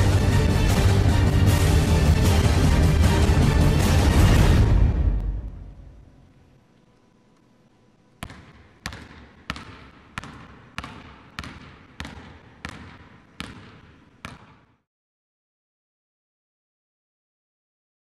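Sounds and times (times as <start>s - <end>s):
basketball dribbling on hardwood floor: 8.2s - 14.6s.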